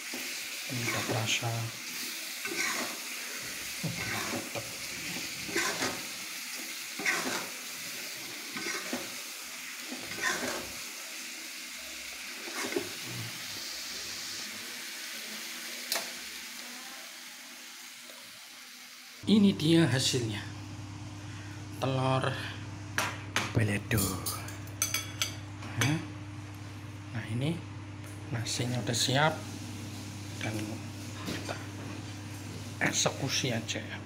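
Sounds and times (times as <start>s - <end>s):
sauce sizzling in a wok: 0.0s - 19.2s, 29.0s - 33.7s
metal spatula scraping wok: 2.4s - 3.0s, 3.9s - 6.0s, 7.0s - 7.6s, 8.3s - 9.1s, 10.0s - 10.7s, 12.4s - 13.0s.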